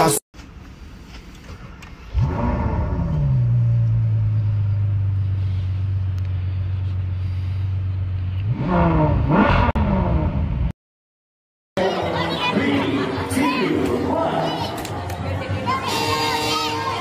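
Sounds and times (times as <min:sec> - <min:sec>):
car engine starting and idling: 0:01.2 - 0:10.7
engine revving: 0:02.1 - 0:10.7.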